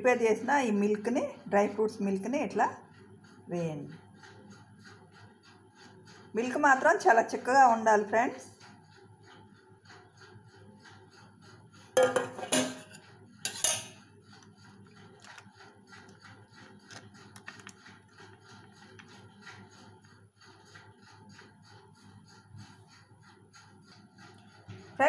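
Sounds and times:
metal bowl clattering: 12.0 - 14.0.

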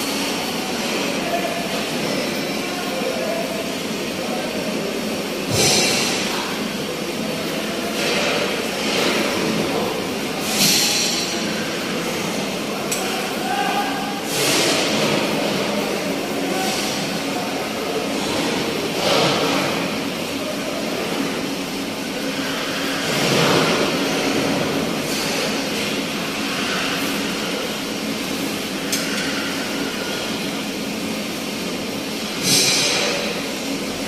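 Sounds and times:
steady mechanical din: 7.7 - 15.9.

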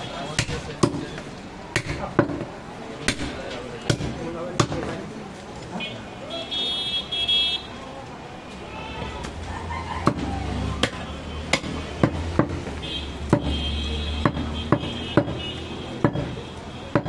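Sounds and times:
knife chopping on wooden block: 10.8 - 12.7, 14.2 - 15.4.

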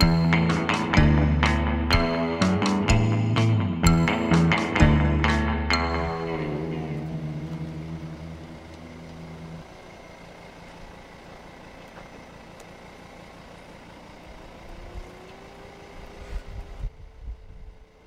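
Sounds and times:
electric guitar chord ringing: 0.0 - 10.3.

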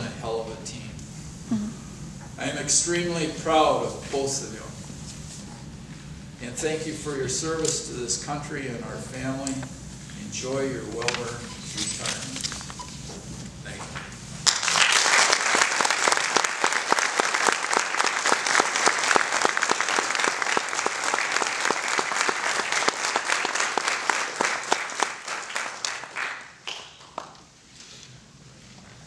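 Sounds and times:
audience applauding: 14.4 - 27.6.

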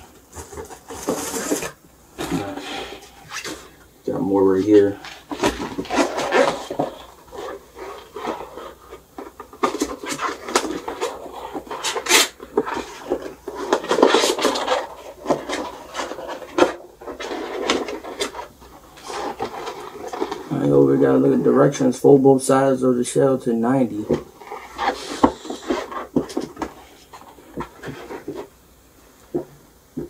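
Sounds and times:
cardboard box rubbing and crinkling: 0.0 - 3.8, 5.0 - 20.8, 24.2 - 28.5.

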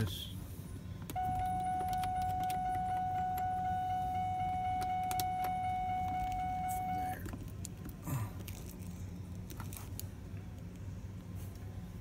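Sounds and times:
low steady hum: 0.0 - 12.0
electronic warning tone: 1.2 - 7.2.

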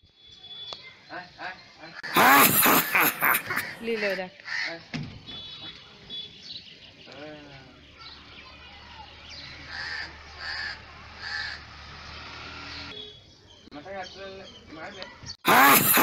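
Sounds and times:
crow cawing: 3.2 - 4.9, 9.7 - 11.7.

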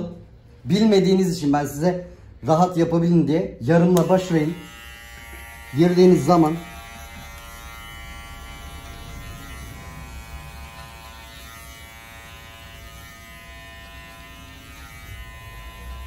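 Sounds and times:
electric hair clipper buzzing: 4.0 - 16.0.

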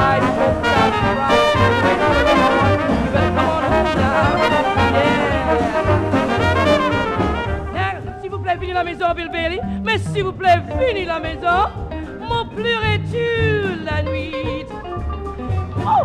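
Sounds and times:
trumpet: 0.0 - 8.5
sliding trombone notes: 0.0 - 8.6
jazz band playing: 0.0 - 16.0
pulsing bass line: 0.0 - 16.0.

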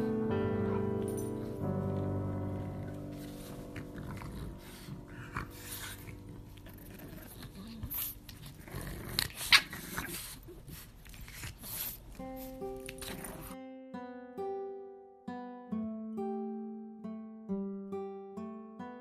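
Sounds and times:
strummed guitar music: 0.0 - 8.0, 12.1 - 19.0
dogs breathing and grunting: 0.0 - 13.6.

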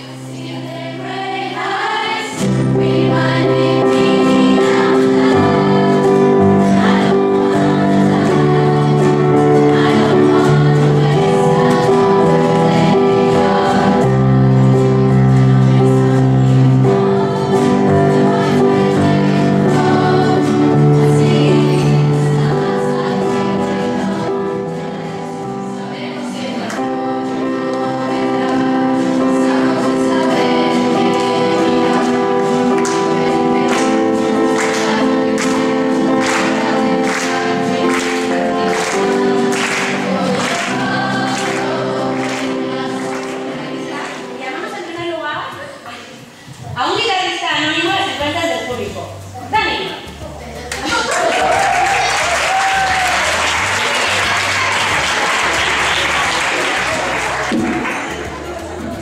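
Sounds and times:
electronic keyboard: 0.0 - 45.6
voices singing along: 0.0 - 46.4, 50.8 - 59.0
acoustic guitars: 0.0 - 59.0.

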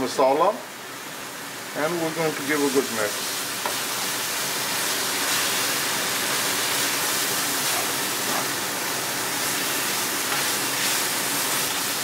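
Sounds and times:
onions sizzling in hot oil: 0.8 - 12.0
spatula stirring: 9.5 - 12.0.

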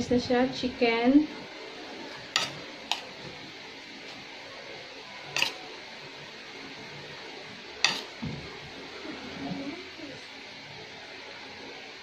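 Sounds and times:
metal spoon clinking on plates: 2.3 - 3.1, 5.3 - 5.6, 7.8 - 8.1.

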